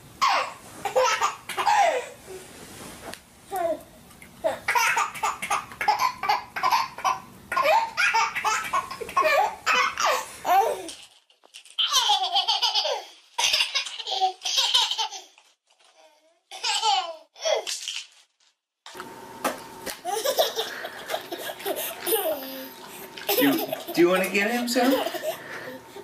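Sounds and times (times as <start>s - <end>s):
baby laughing: 0.2s - 2.2s, 4.4s - 11.0s, 11.8s - 15.4s, 16.5s - 17.7s, 20.0s - 24.2s, 24.8s - 25.8s
toddler laughing: 0.2s - 2.2s, 4.4s - 10.9s, 11.8s - 15.4s, 16.5s - 17.7s, 20.0s - 24.1s, 24.8s - 25.8s.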